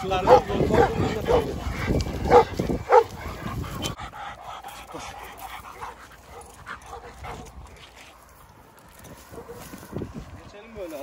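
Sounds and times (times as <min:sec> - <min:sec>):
dogs barking: 0:00.0 - 0:07.9, 0:09.3 - 0:09.7.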